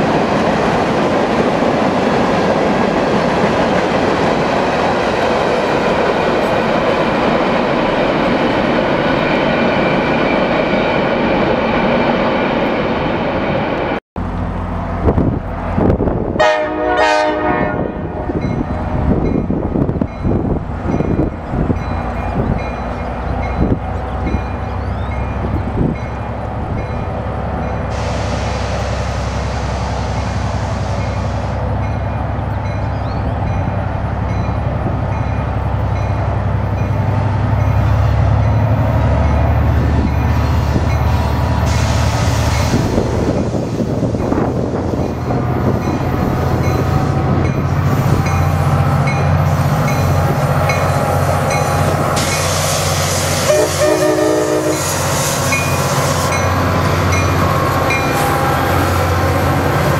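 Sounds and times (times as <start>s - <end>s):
diesel locomotive engine rumble: 0.0s - 59.9s
wheels on rail: 0.0s - 59.9s
train horn: 16.4s - 18.4s, 53.1s - 56.4s.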